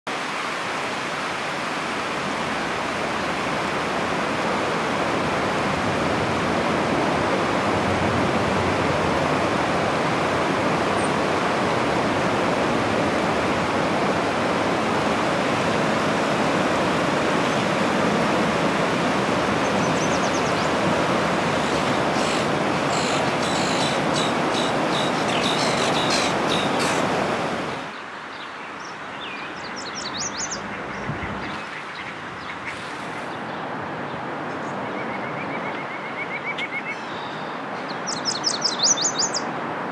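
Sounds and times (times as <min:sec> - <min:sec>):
river water rushing: 0:00.1 - 0:39.9
high bird chirps: 0:29.2 - 0:32.6.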